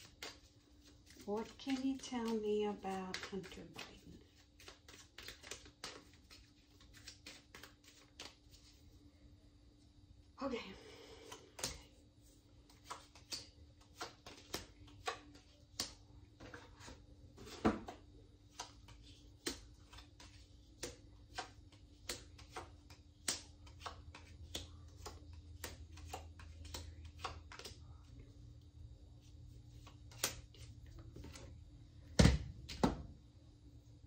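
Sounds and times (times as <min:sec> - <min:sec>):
cards dealt onto countertop: 0:00.0 - 0:04.0, 0:12.7 - 0:27.8, 0:29.7 - 0:31.5.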